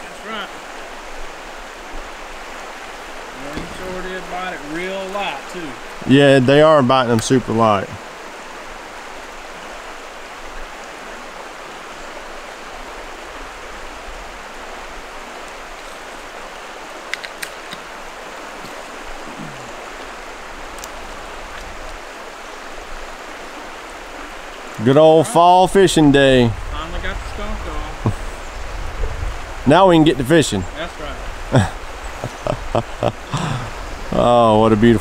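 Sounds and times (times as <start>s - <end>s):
river rushing over stones: 0.0s - 35.0s
faint clicks: 20.7s - 22.0s.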